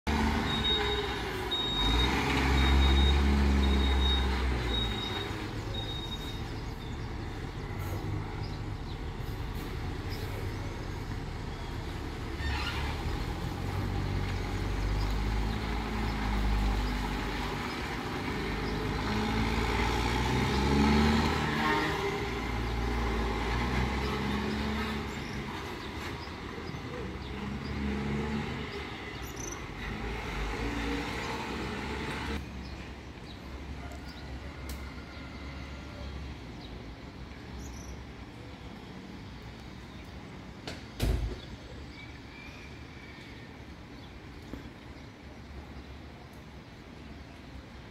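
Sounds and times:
truck diesel engine revving: 0.1 - 32.4
reversing alarm beeping: 0.3 - 6.6.

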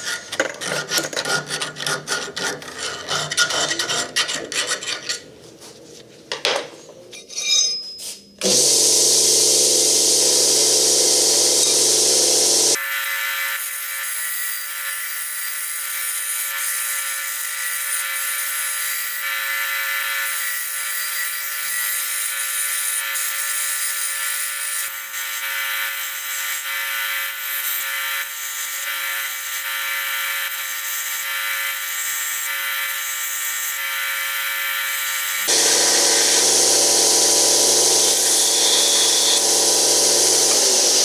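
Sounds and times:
belt sander whine: 8.4 - 12.8, 35.4 - 41.0.

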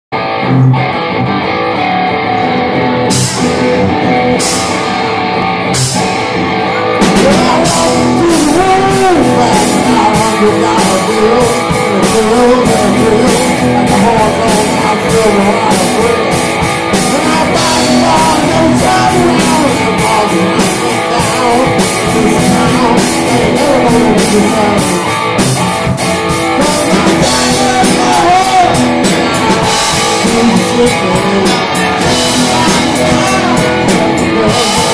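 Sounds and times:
live rock band playing: 0.1 - 34.9
man singing: 6.6 - 25.4, 26.2 - 34.9.

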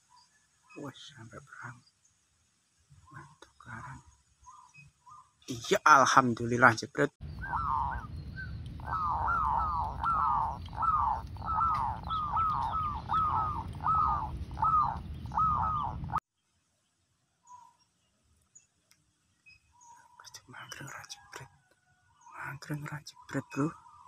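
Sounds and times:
low steady rumble: 7.2 - 16.2
dove cooing: 7.3 - 16.2.

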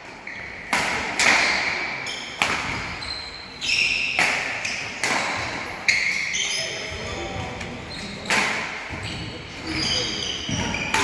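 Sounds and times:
sports shoes squeaking: 0.2 - 0.7, 1.4 - 11.0
racket hitting shuttlecock: 0.6 - 3.0, 4.1 - 5.6, 8.2 - 9.0, 10.5 - 11.0.

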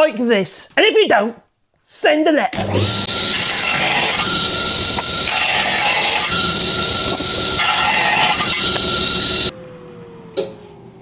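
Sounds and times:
saw blade cutting wood: 2.6 - 9.5
table saw whine: 2.6 - 9.6.

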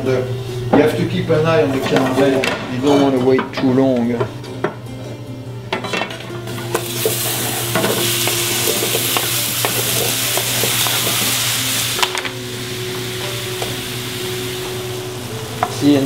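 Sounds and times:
caramel sizzling in a skillet: 6.5 - 16.0.

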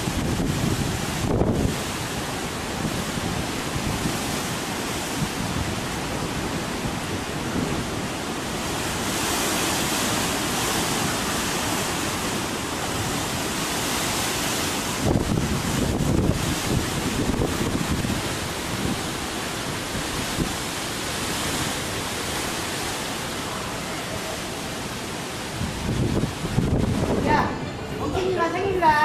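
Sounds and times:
gale buffeting microphone: 0.0 - 29.0.

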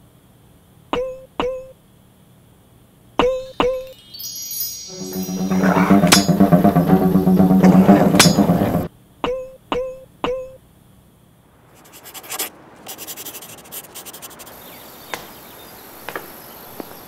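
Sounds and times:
pen scribbling on paper: 11.8 - 14.5.

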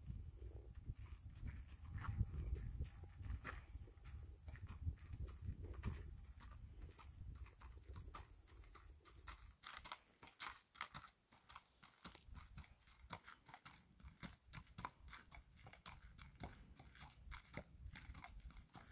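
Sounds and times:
horse hooves on gravel: 0.8 - 18.9
boots crunching on gravel: 9.1 - 14.3.

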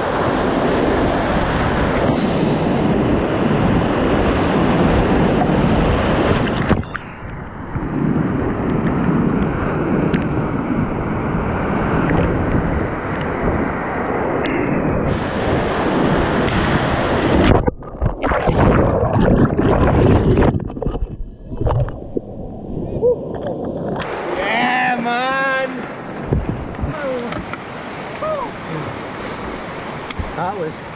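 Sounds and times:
muffled underwater churning: 0.0 - 24.4
whitewater rapids rushing: 24.0 - 26.2, 26.9 - 30.9.

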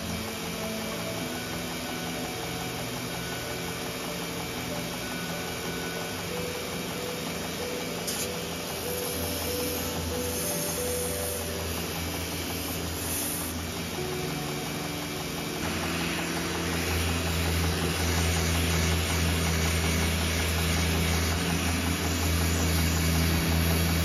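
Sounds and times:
belt grinder sanding wood: 0.0 - 24.0.

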